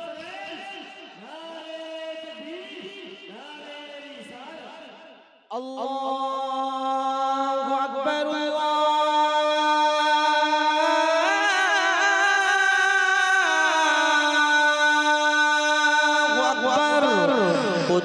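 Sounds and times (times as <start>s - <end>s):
person singing without words: 5.5s - 18.0s.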